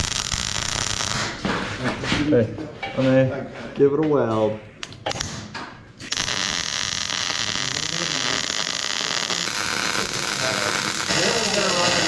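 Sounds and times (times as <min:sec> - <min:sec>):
welding arc hissing: 0:00.0 - 0:01.5, 0:06.0 - 0:12.0.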